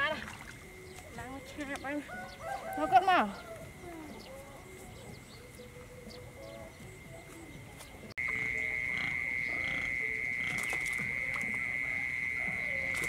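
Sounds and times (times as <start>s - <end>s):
high-pitched insect drone: 8.2s - 13.0s.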